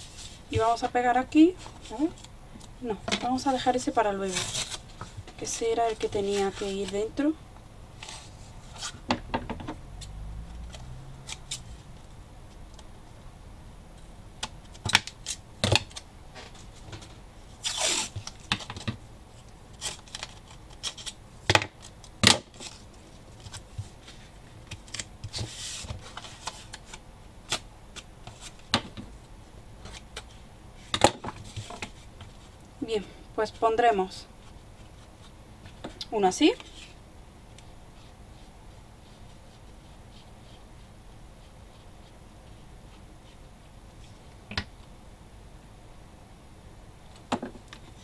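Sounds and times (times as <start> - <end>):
tape being pulled: 17.6 - 18.4.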